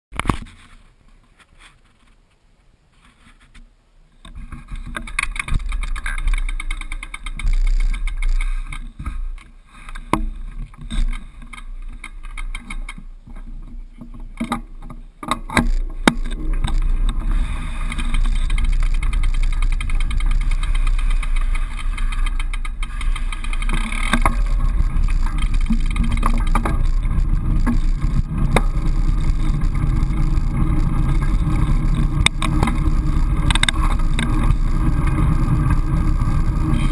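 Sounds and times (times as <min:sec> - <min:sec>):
knocks and rustles: 0:00.1 - 0:35.8
deep rumble: 0:15.7 - 0:36.9.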